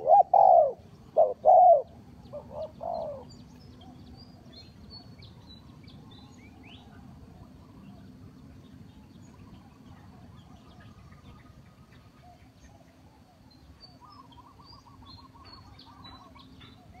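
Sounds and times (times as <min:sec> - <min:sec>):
small birds chirping: 0:00.0 - 0:17.0
bird trill: 0:09.2 - 0:17.0.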